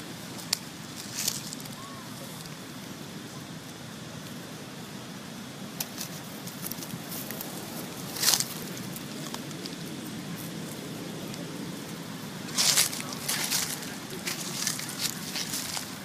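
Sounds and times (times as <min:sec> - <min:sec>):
steady outdoor hiss: 0:00.0 - 0:16.0
dry leaves crackling and rustling: 0:00.2 - 0:02.6, 0:05.8 - 0:16.0
leaves crunching: 0:00.4 - 0:01.9, 0:05.9 - 0:09.9, 0:12.4 - 0:16.0.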